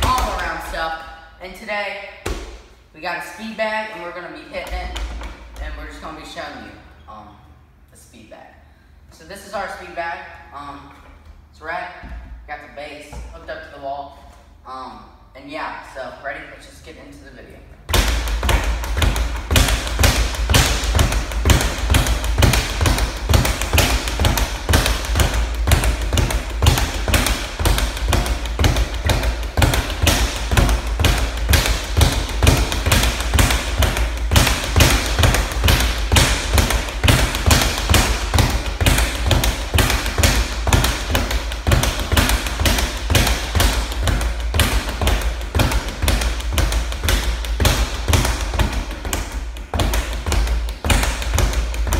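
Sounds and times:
speed bag knocking rapidly: 0:17.9 - 0:51.9.

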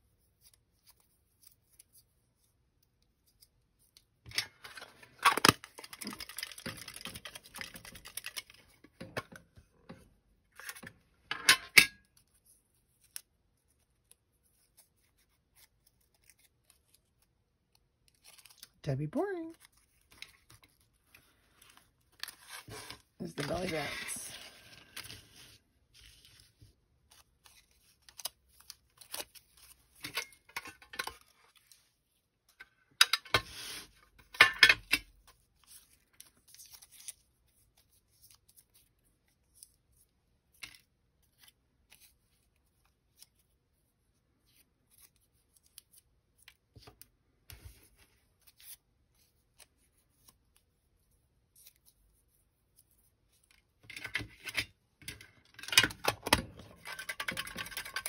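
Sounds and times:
paper rustling: 0:19.5 - 0:30.0.

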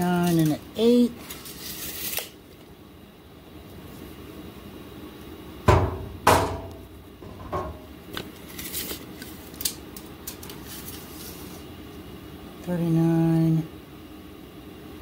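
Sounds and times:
sharp metal knocks: 0:05.7 - 0:07.8.

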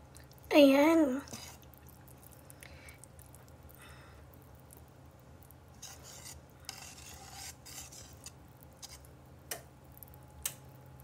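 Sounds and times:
whisk swishing batter: 0:01.3 - 0:01.7, 0:05.8 - 0:09.1
whisk clinking metal bowl: 0:05.8 - 0:09.0.

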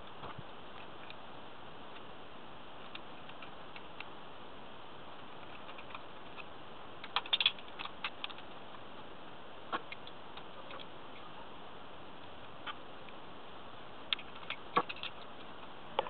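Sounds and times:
steady hiss: 0:00.0 - 0:16.0
small metallic clicks and taps: 0:05.4 - 0:08.5, 0:14.1 - 0:16.0.

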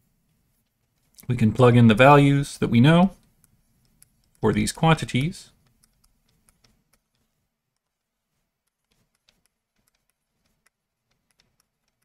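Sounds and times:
stylus tapping on tablet screen: 0:05.2 - 0:08.0, 0:08.6 - 0:12.0.

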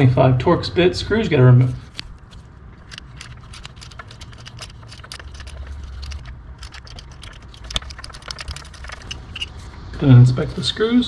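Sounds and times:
hand ratchet clicking: 0:02.8 - 0:09.6.

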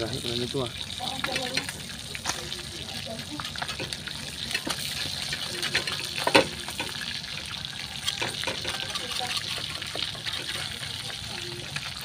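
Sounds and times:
fish sizzling in hot oil: 0:00.0 - 0:12.0
metal spatula scraping pan: 0:08.1 - 0:11.1.

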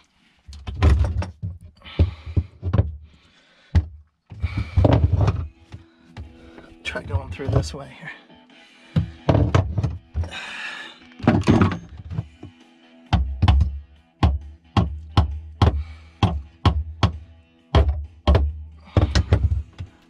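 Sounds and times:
background music: 0:04.4 - 0:20.0.

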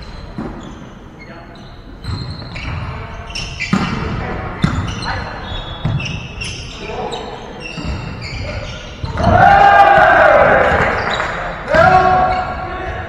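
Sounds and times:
shoes squeaking on court: 0:00.0 - 0:09.4, 0:10.6 - 0:13.0
players calling out: 0:04.6 - 0:13.0.

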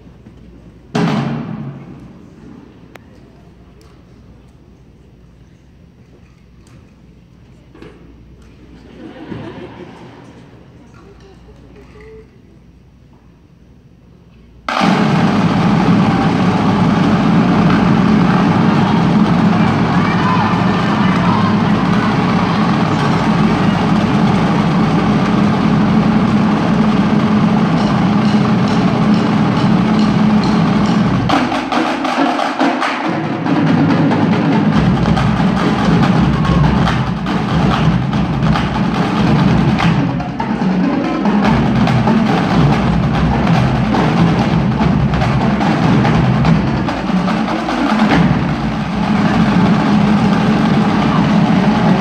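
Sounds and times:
tenor drums: 0:00.2 - 0:02.6, 0:14.6 - 0:52.0
snare drums: 0:00.9 - 0:02.3, 0:14.7 - 0:52.0
marching bass drums: 0:14.7 - 0:52.0.

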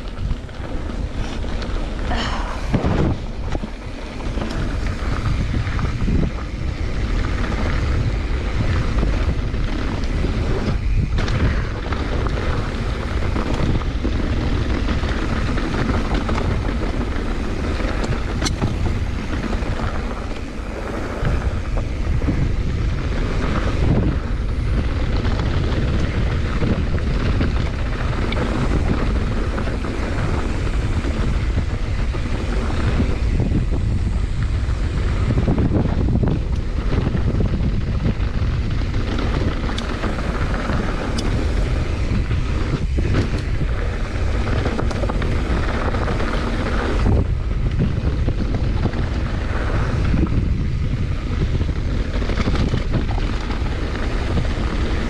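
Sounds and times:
bike tyres rolling on dirt: 0:00.0 - 0:55.0
wind rushing on microphone: 0:00.0 - 0:55.0.

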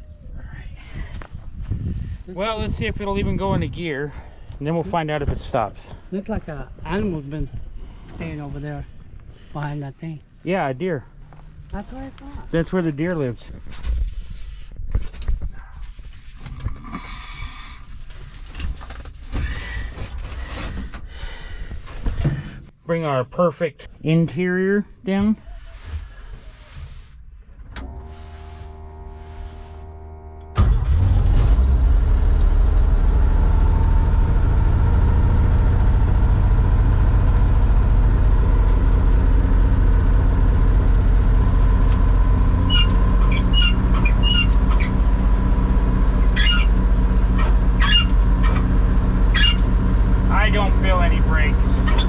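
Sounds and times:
truck engine running: 0:27.8 - 0:52.0
short high squeaks: 0:42.5 - 0:45.1, 0:46.2 - 0:48.7, 0:49.3 - 0:49.8, 0:51.8 - 0:52.0.

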